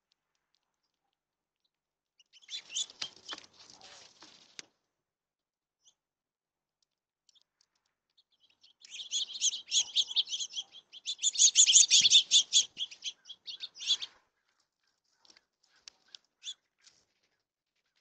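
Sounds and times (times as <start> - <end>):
songbirds chirping: 2.2 - 4.3, 7.3 - 18.0.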